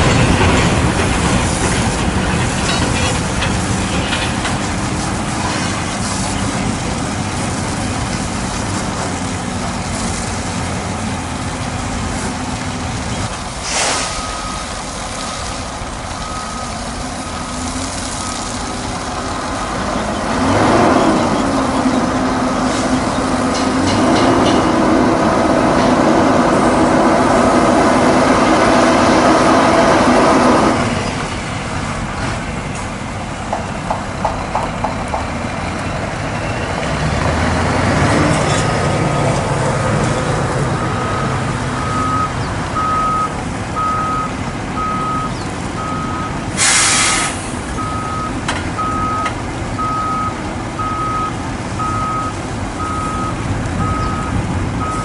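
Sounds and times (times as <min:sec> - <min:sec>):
diesel truck engine running: 0:00.0 - 0:55.0
air brake hiss: 0:13.6 - 0:14.3, 0:46.6 - 0:47.7
truck reversing alarm beeps: 0:13.8 - 0:19.3, 0:40.7 - 0:55.0.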